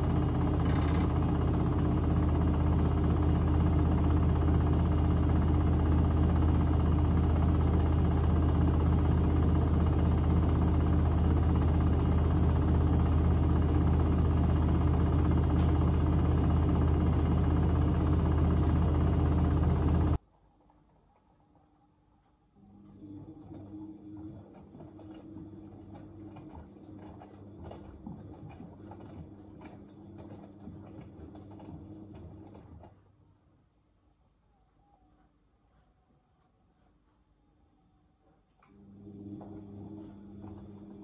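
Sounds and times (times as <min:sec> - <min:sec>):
washing machine spinning: 0:00.0 - 0:33.4, 0:38.6 - 0:41.0.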